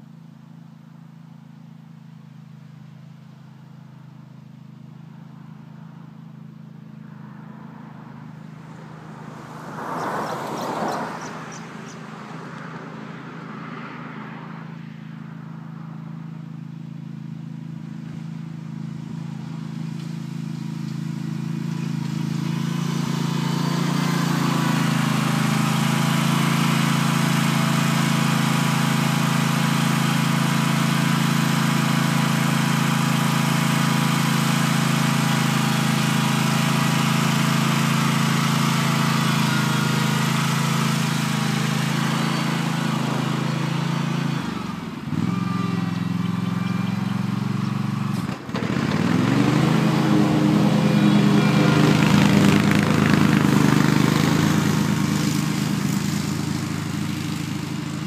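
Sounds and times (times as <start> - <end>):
lawn mower engine running: 16.1 - 58.0.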